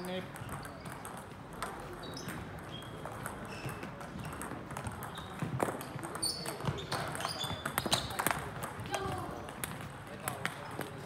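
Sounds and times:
table tennis ball clicks: 0.0s - 8.8s.

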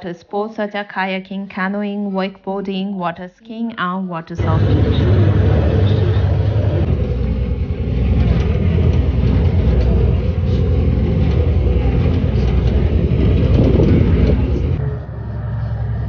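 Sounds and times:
boat engine rumble: 4.4s - 16.0s
boat wake rushing: 4.4s - 16.0s
wind on microphone: 4.4s - 16.0s.

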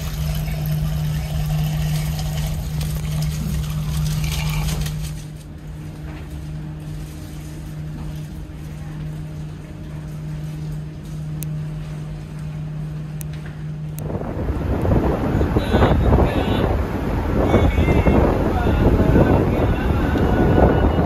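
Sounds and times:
hot water pouring into a cup: 0.0s - 5.2s
ship engines humming: 0.0s - 21.0s.

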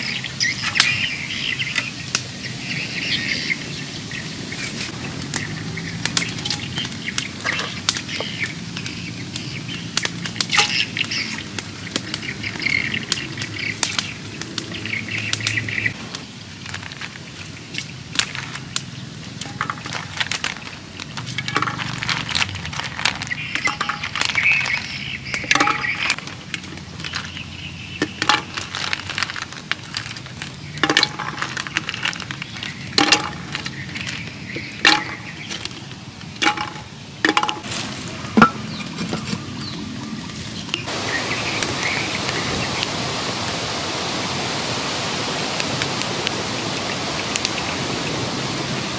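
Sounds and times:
birds calling: 0.0s - 48.9s
snail shells clicking in clay pot: 16.7s - 37.6s.

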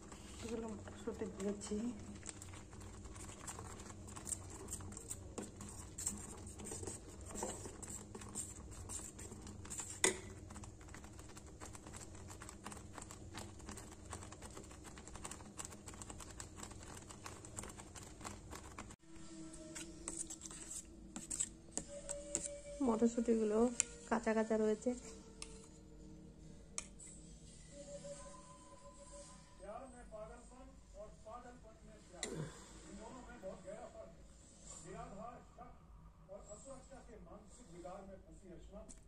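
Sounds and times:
porridge bubbling and popping: 0.0s - 19.0s.

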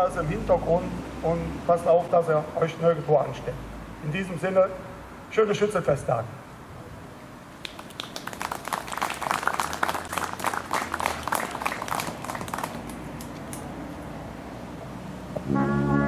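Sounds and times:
small group applauding: 7.6s - 13.7s.

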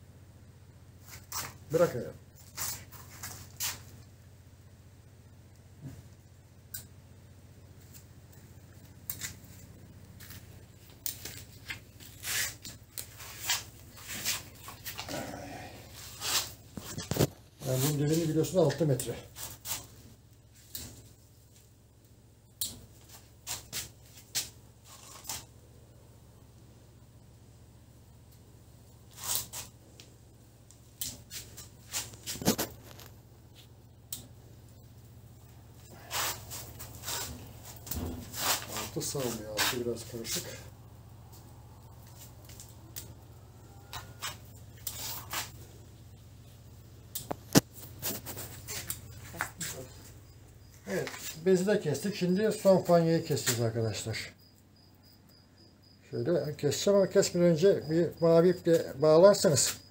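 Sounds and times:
netting snipping and snapping: 22.6s - 25.5s.

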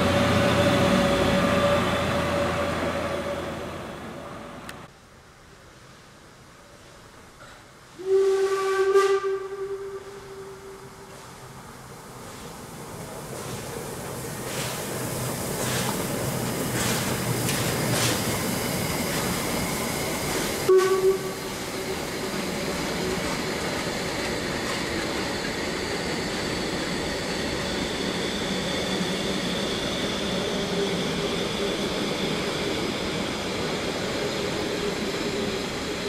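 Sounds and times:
train wheels rumbling on rails: 0.0s - 4.9s, 7.4s - 36.0s
train whistle toot: 8.0s - 11.0s, 20.7s - 21.5s.

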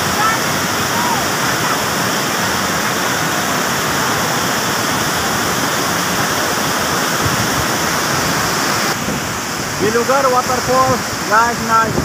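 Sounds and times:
waterfall cascading over rocks: 0.0s - 12.0s.

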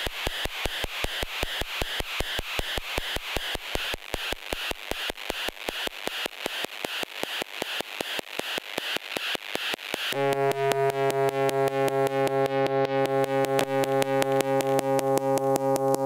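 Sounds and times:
synthesizer clicking pulses: 8.8s - 16.0s
buzzy pulsing synth tone: 10.1s - 16.0s.

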